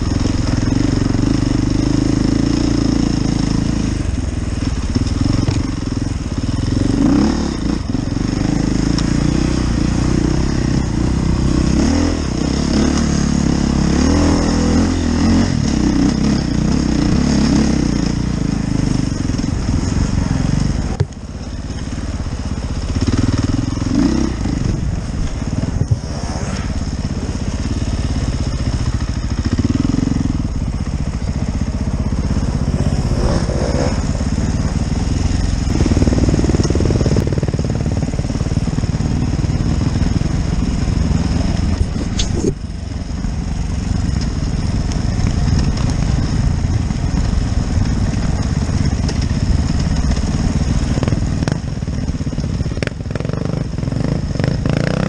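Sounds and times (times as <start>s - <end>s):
motorcycle engine revving: 0.0s - 55.0s
wind noise on microphone: 24.3s - 27.2s, 40.0s - 42.6s.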